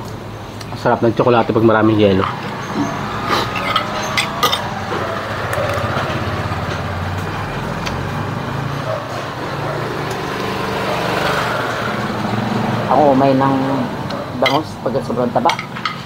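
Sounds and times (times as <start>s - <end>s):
vehicle engine running: 1.4s - 16.0s
cutlery clinks: 2.2s - 4.7s.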